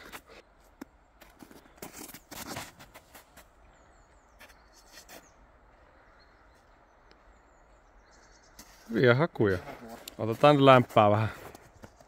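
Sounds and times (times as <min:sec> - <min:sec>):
footsteps crunching in snow: 0:01.2 - 0:03.6, 0:04.4 - 0:05.9
faint high bird chirps: 0:03.6 - 0:09.1.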